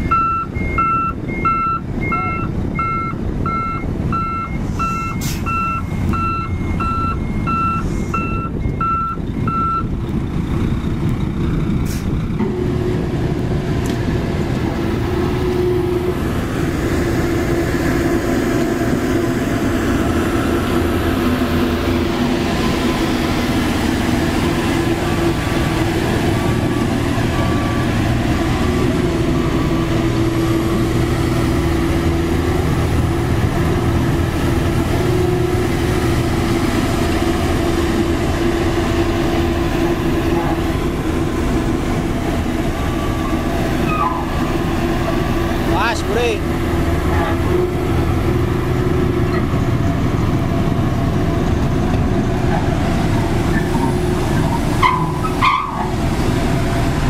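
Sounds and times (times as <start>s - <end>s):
roller diesel engine rumble: 0.0s - 57.0s.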